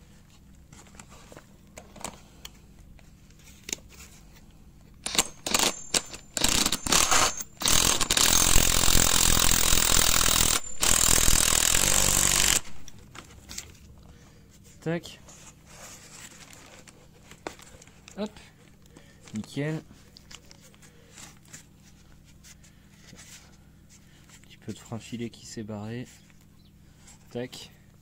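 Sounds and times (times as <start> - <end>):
cordless impact wrench running: 5.0 - 13.0.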